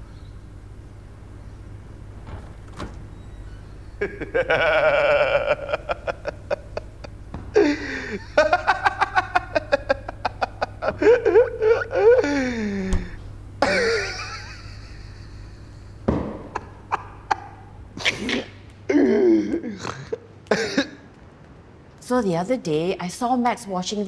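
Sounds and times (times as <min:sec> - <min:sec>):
young man laughing hard: 0:04.0 - 0:21.0.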